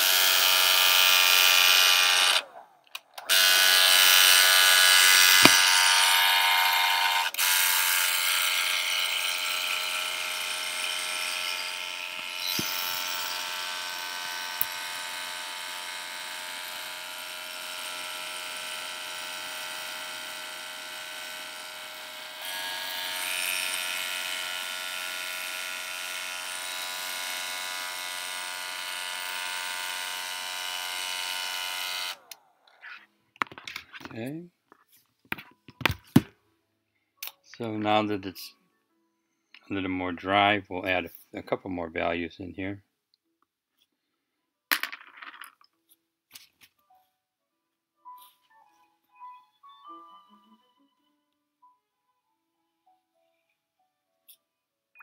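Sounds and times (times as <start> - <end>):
electric dryer whine and air: 3.2 - 32.3.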